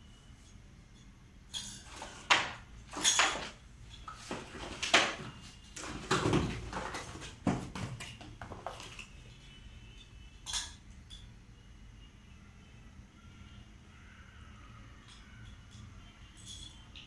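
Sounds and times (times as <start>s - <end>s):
plastic toy parts clattering: 1.5s - 9.1s
cardboard packaging rustling: 1.9s - 9.2s.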